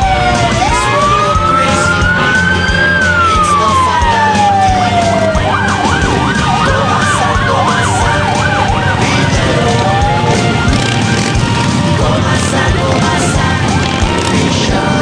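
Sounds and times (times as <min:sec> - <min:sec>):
siren wailing and warbling: 0:00.0 - 0:15.0
motorcycles riding past: 0:05.3 - 0:15.0.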